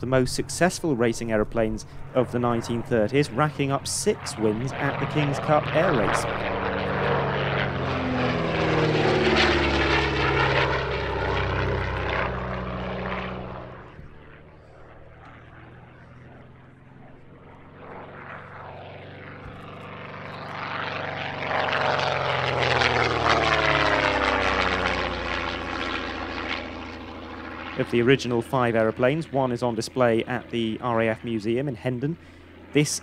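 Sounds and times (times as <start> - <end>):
propeller aeroplanes passing low: 0.0 - 33.0.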